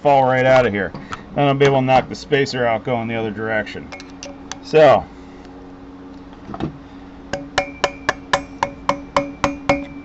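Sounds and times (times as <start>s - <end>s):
hammer striking metal screwdriver: 7.4s - 10.0s.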